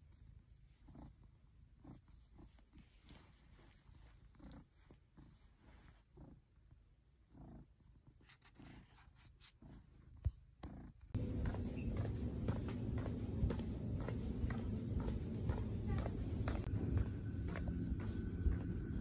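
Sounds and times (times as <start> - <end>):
cat purring: 0.0 - 19.0
steady background noise: 11.2 - 19.0.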